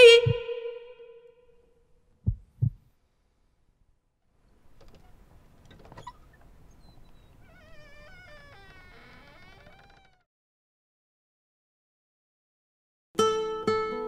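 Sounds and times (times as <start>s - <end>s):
heartbeat thumps: 0.0s - 0.6s, 2.2s - 2.9s
faint background noise: 0.0s - 9.9s.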